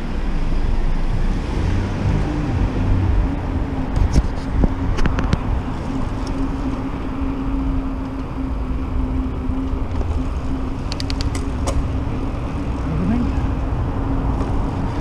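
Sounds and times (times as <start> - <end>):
bike tyres rolling on concrete: 3.1 - 12.6
sharp clicks: 10.9 - 11.8.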